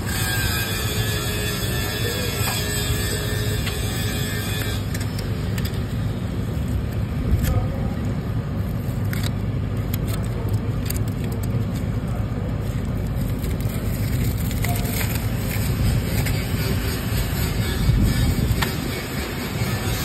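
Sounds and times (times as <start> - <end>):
steady low rumble: 0.9 - 20.0
weld backing strip clicks and crackles: 8.8 - 12.2.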